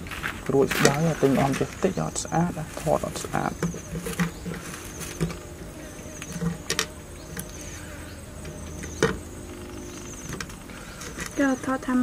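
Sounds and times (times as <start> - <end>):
insects trilling: 0.0 - 12.0
sharp clicks and knocks: 8.4 - 11.4.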